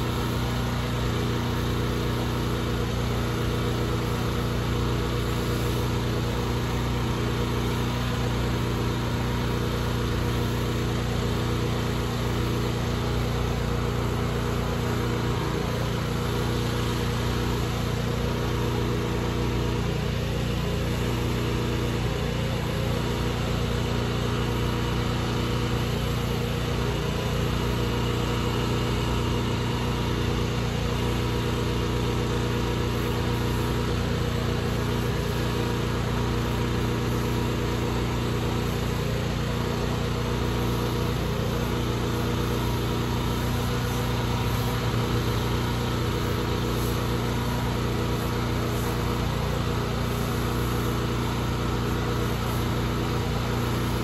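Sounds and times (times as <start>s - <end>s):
pressure washer engine running: 0.0s - 54.0s
water spray hissing on concrete: 0.0s - 54.0s.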